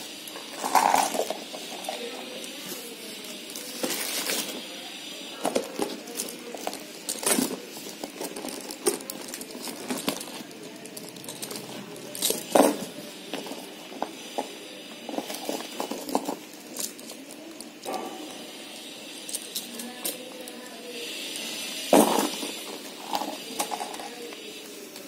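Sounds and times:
packaging rustling: 3.6 - 4.6, 5.6 - 14.2
chain straps clinking: 8.4 - 12.6.

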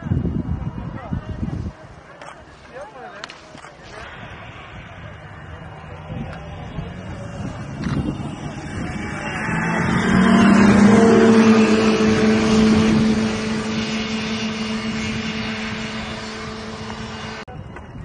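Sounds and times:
snowmobile engine running: 3.8 - 17.5.

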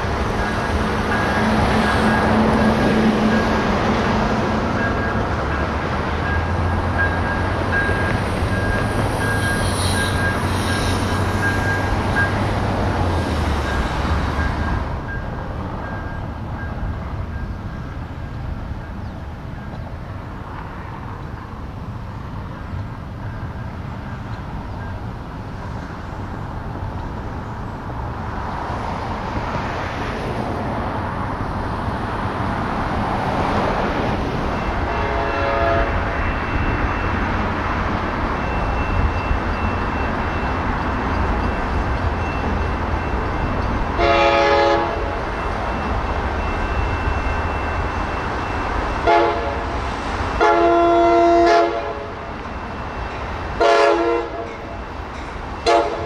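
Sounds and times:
diesel train passing: 0.0 - 56.0
train horn: 34.8 - 36.1, 44.0 - 45.2, 49.0 - 49.8, 50.4 - 52.2, 53.6 - 54.5, 55.6 - 56.0.

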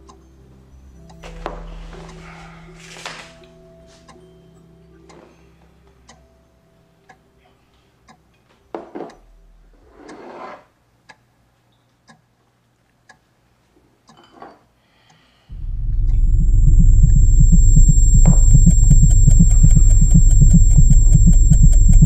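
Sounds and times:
clock ticking: 15.5 - 22.0
low pulsing drone: 15.5 - 22.0.

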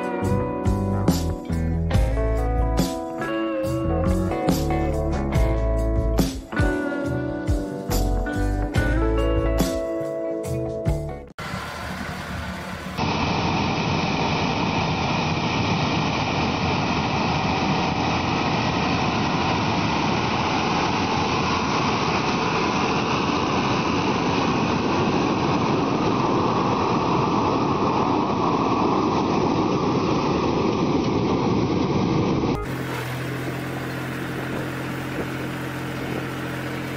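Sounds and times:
tractor engine running: 11.3 - 36.9
flame burners rushing: 11.4 - 36.9.

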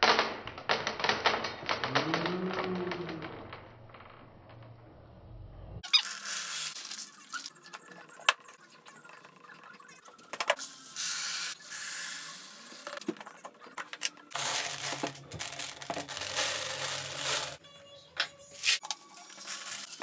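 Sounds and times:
dried kernels pouring into plastic: 14.3 - 17.6, 19.2 - 20.0.

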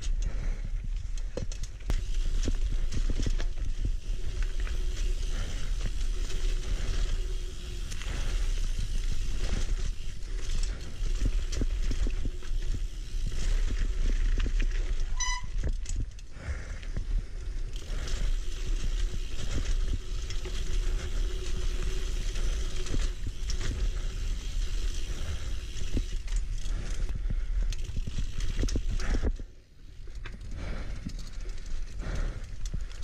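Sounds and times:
bike rattling and clicking: 0.0 - 33.0
bike rumbling on rough ground: 0.0 - 33.0.

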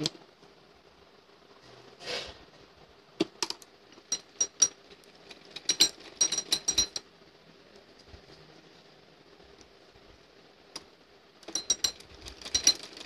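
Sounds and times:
small sharp clicks and clinks: 11.4 - 13.0.

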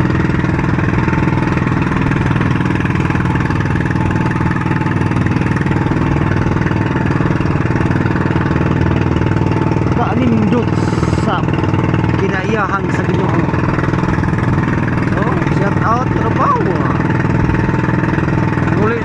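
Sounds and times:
boat engine running: 0.0 - 19.0.

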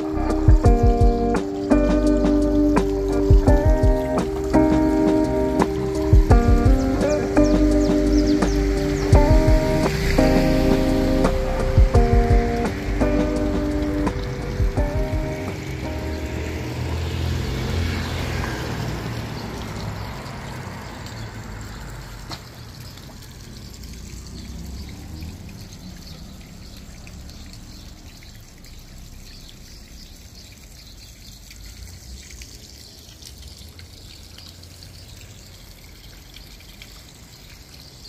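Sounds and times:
background music: 0.0 - 17.5
water trickling in a pond: 0.0 - 38.0.

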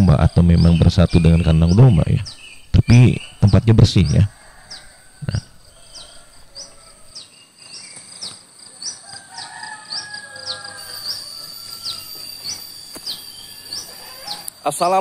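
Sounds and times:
bird high-pitched chirp: 0.0 - 8.4, 10.0 - 14.6
high insect hum: 0.0 - 15.0
faint rooster crowing: 3.2 - 7.4, 8.7 - 14.6.

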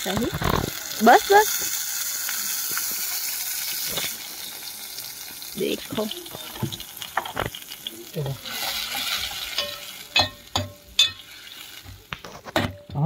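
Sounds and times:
masala sizzling in a pot: 0.0 - 13.0
ladle scraping metal pot: 8.5 - 12.9
ladle knocking against pot: 9.6 - 11.2.

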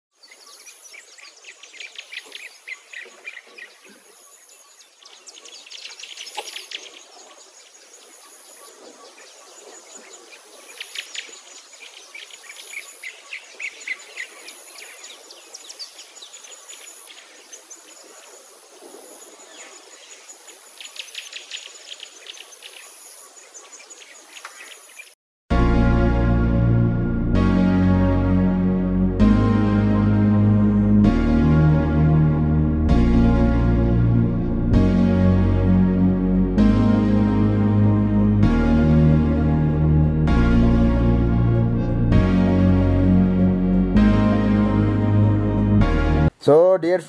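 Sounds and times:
birds chirping and trilling: 0.1 - 25.2.

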